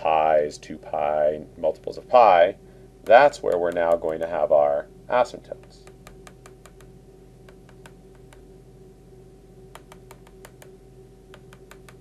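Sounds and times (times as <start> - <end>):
faint electrical hum: 0.0 - 12.0
stylus tapping on tablet screen: 3.0 - 4.4, 5.6 - 8.4, 9.7 - 12.0.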